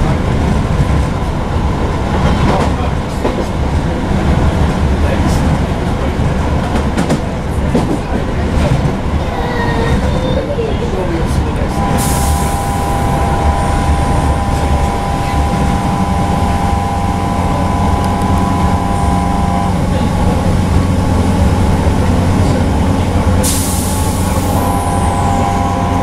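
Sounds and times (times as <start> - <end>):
train wheel and track rumble: 0.0 - 26.0
two-note electric traction whine: 11.7 - 26.0.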